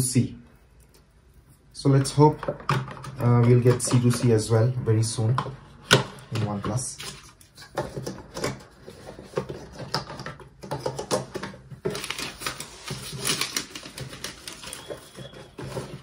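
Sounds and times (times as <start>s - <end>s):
cardboard box and packaging handled: 6.4s - 16.0s.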